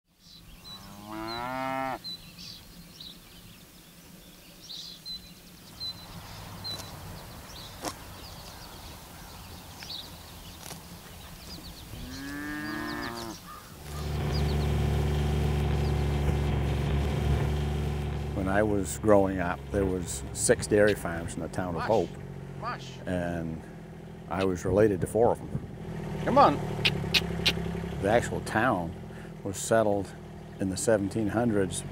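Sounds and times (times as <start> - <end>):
faint bird chirps: 0.2 - 14.7
cows mooing: 0.6 - 2.0, 11.8 - 15.7
utility vehicle engine running: 5.7 - 31.9.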